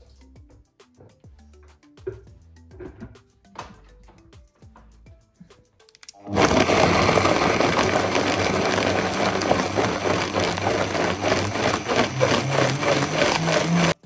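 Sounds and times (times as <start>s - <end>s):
blender running: 6.2s - 14.0s.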